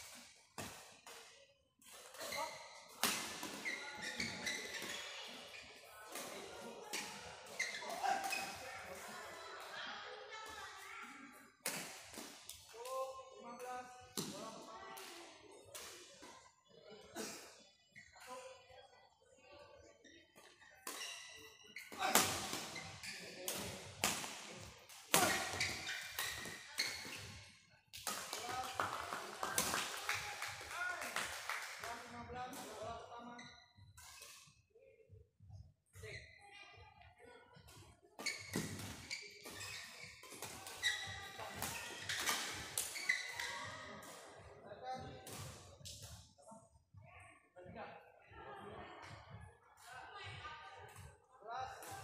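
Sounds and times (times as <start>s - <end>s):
shoes squeaking on court: 2.1s - 8.8s, 20.0s - 24.4s, 25.1s - 29.2s, 38.2s - 44.2s
racket hitting shuttlecock: 25.1s - 27.1s.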